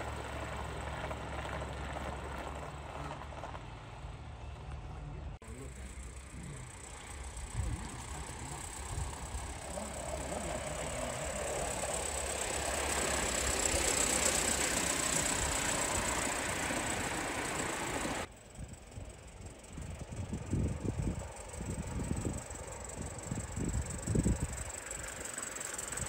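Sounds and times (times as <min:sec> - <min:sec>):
model steam locomotive hissing: 0:05.4 - 0:26.0.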